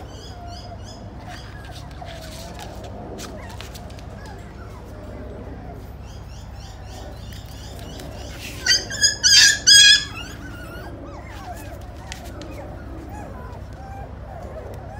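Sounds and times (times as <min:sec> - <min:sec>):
puppy yapping: 0:07.4 - 0:14.9.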